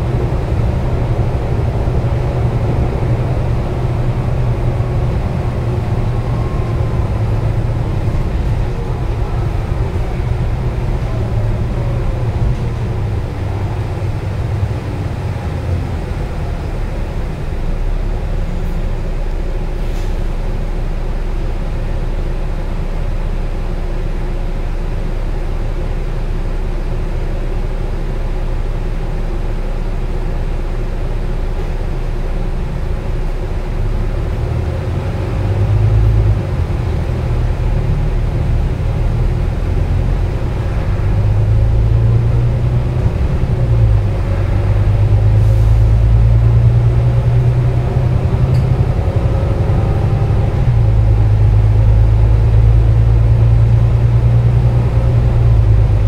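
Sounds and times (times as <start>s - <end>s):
bus diesel engine and road rumble: 0.0s - 56.0s
faint drivetrain whine: 0.0s - 56.0s.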